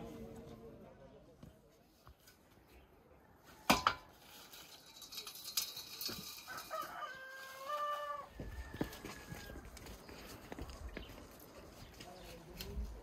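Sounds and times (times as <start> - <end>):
rooster crowing: 6.5 - 9.7.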